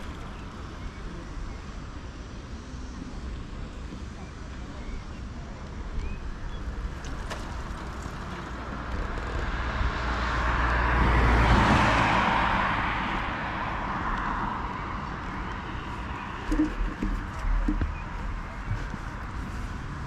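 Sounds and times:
car passing by: 8.4s - 16.6s.

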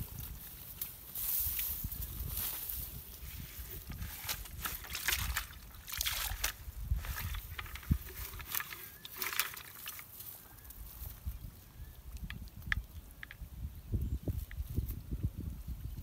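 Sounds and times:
handling rustles: 0.6s - 10.8s
small water splashes: 4.6s - 8.6s.

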